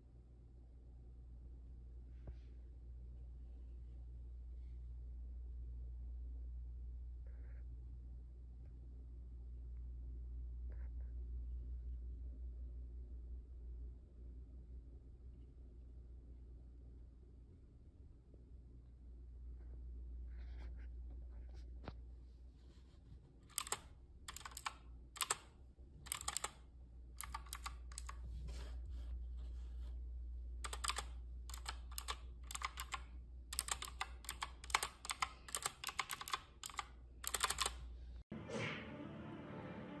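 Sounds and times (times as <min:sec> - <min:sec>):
mechanical keyboard clicks: 0:23.5 - 0:26.6, 0:27.2 - 0:28.2, 0:30.6 - 0:37.8.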